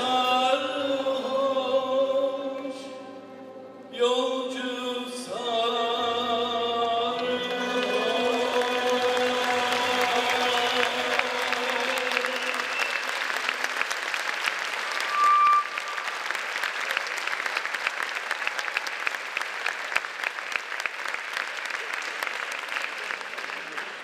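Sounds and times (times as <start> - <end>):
choir and ensemble holding note: 0.0 - 13.7
audience applauding: 7.3 - 24.0
loud high whistle: 12.3 - 13.5, 14.8 - 16.3.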